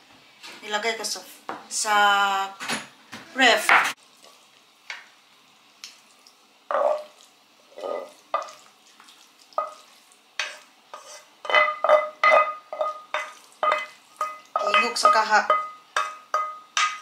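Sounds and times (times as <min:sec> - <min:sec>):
wooden spoon scraping a pan: 0:06.7 - 0:17.0
metal pan ringing: 0:11.5 - 0:17.0.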